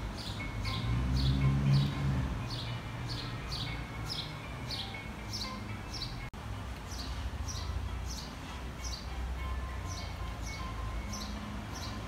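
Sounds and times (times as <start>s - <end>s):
bird chirping: 0.0s - 6.3s, 6.9s - 9.2s, 9.8s - 12.0s.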